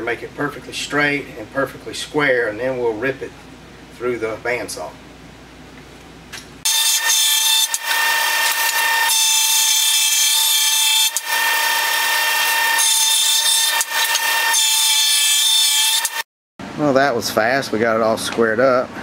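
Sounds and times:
jointer high whine: 6.7 - 16.2
wood cutting hiss: 6.7 - 16.2.

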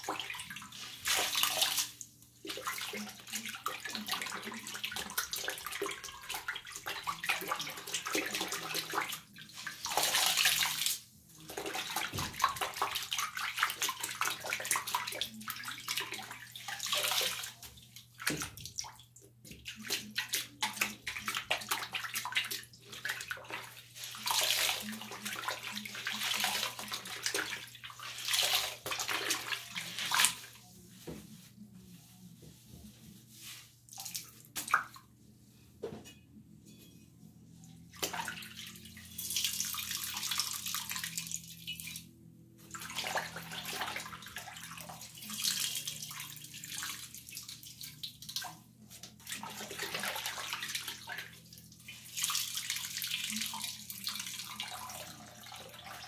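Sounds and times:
sponge scrubbing wet basin: 0.0 - 35.3, 42.6 - 56.0.

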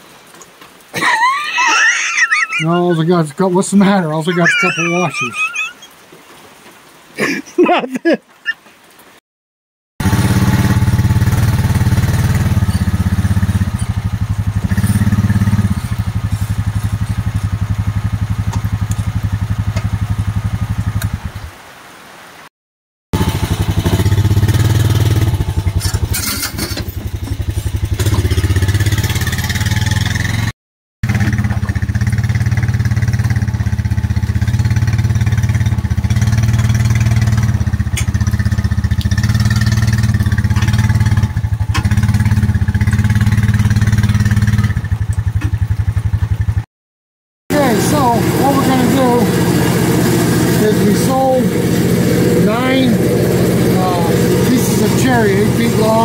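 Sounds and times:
atv engine running: 10.0 - 21.4, 23.2 - 46.7, 47.5 - 56.0.

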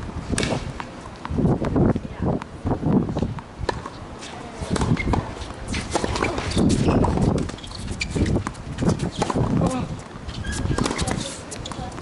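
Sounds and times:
tennis ball bouncing on court: 3.2 - 4.0, 4.6 - 12.0
racket striking ball: 3.3 - 4.0, 4.6 - 7.6, 10.6 - 12.0.

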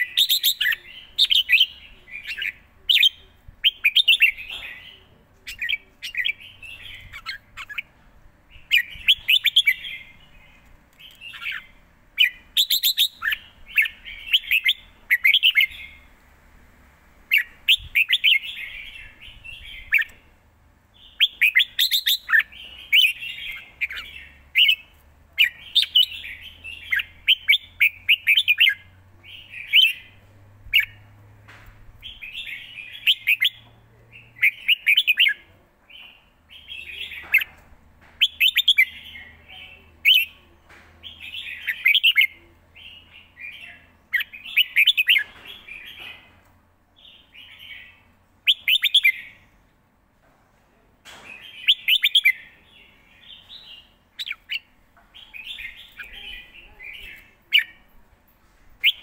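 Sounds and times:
bulbul singing whistled phrases: 0.0 - 7.9, 8.6 - 10.4, 11.0 - 16.0, 17.3 - 20.2, 21.0 - 31.0, 32.0 - 33.6, 34.2 - 35.5, 38.2 - 46.2, 47.1 - 49.4, 51.5 - 52.5, 58.8 - 59.0.

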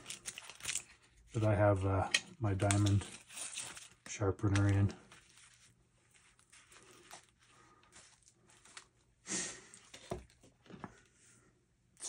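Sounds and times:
canvas sheath rustling: 2.6 - 9.1.

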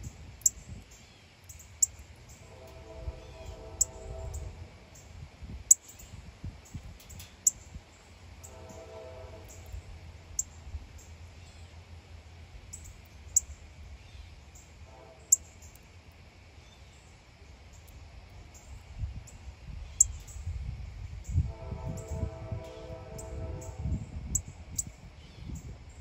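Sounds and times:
low outdoor rumble: 0.0 - 26.0.

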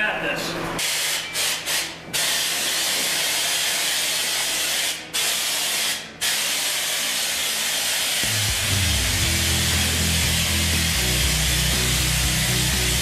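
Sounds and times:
spray gun hissing: 0.8 - 13.0.

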